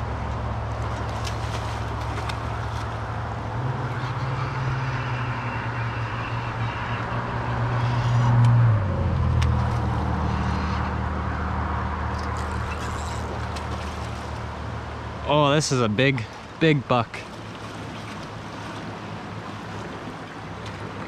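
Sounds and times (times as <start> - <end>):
vehicle engine passing by: 1.0 - 14.3.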